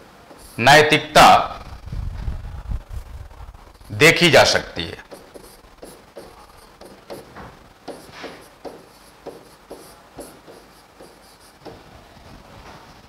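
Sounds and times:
chalk scratching on blackboard: 0.3s - 0.6s, 5.0s - 11.8s.

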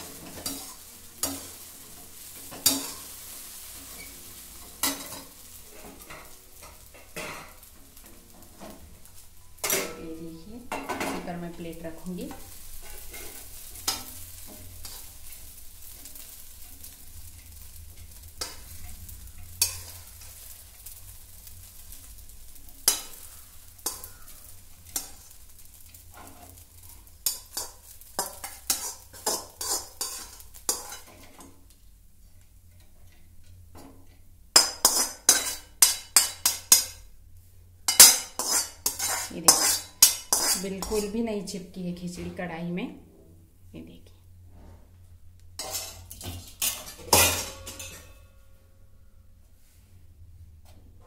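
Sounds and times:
metal utensil scraping a pot: 27.2s - 31.5s, 34.6s - 37.0s, 37.9s - 41.2s, 45.6s - 48.2s.

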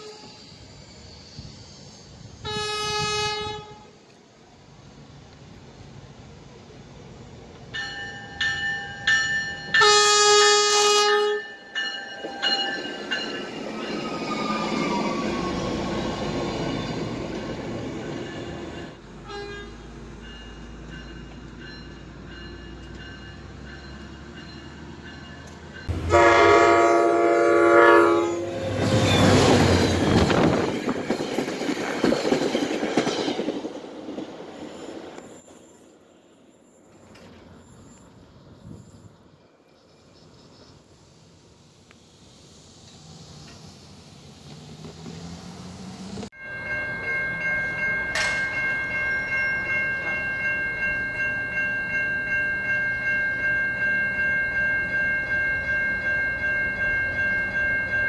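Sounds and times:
train passing: 0.0s - 58.0s
locomotive air horn: 2.4s - 4.0s, 9.8s - 11.5s, 19.2s - 19.8s, 25.9s - 29.0s.

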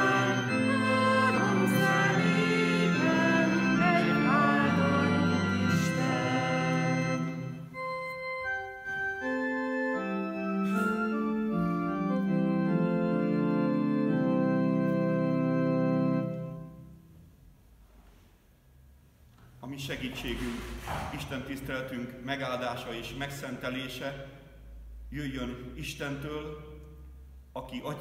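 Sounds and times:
congregation singing a hymn: 0.0s - 7.7s
church organ chords: 0.0s - 17.3s.

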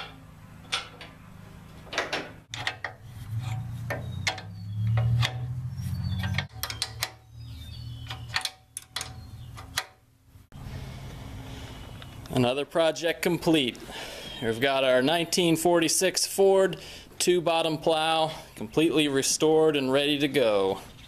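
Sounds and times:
steady low hum: 8.7s - 12.4s.

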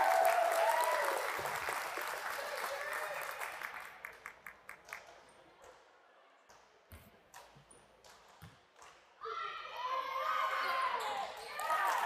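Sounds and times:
faint scattered clapping: 0.0s - 5.8s.

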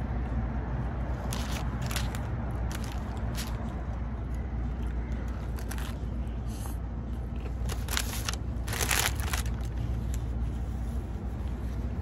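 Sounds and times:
low traffic rumble: 0.0s - 12.0s
crunching taco shell: 7.3s - 10.3s.

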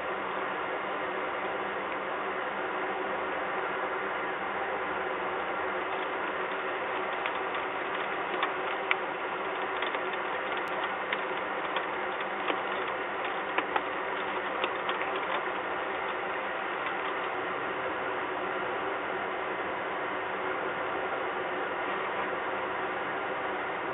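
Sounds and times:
raindrops ticking on hard surfaces: 5.9s - 16.2s.

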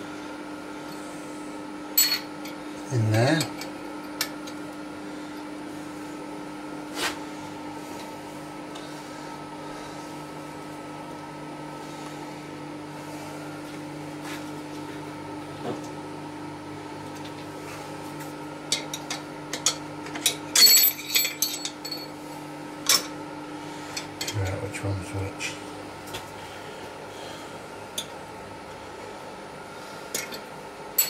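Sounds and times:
steady low hum: 0.0s - 31.0s
steel parts clinking on metal: 18.8s - 22.1s.

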